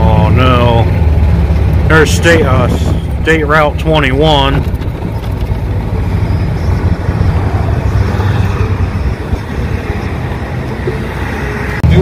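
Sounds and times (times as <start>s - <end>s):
cars driving past: 4.6s - 12.0s.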